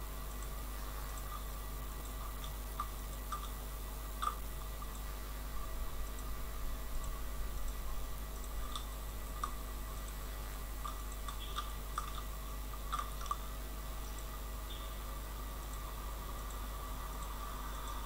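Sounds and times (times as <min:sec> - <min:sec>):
electrical hum and hiss: 0:00.0 - 0:18.0
mouse and keyboard clicks: 0:02.4 - 0:03.6, 0:04.2 - 0:05.1, 0:08.6 - 0:10.2, 0:10.8 - 0:13.4.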